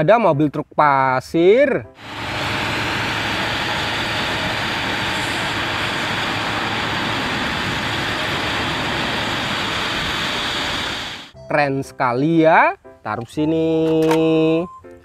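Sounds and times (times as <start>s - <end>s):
diesel truck engine running: 2.0s - 11.4s
hydraulics raising dump body: 2.0s - 11.4s.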